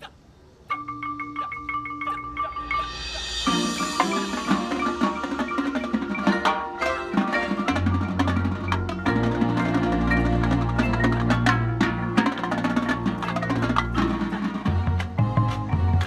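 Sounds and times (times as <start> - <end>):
marimba notes: 0.7 - 16.0
drums: 1.9 - 16.0.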